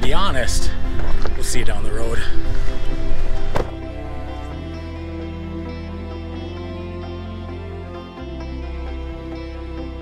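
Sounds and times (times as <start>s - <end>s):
instrumental music with deep bass: 0.0s - 10.0s.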